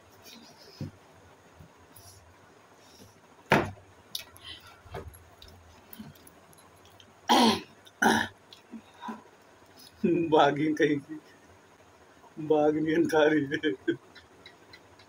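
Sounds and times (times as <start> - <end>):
person coughing: 7.3 - 8.3.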